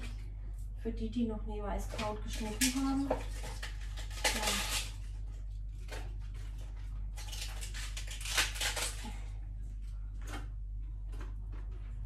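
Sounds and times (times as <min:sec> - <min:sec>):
cabbage rustling and crunching: 0:02.0 - 0:09.3.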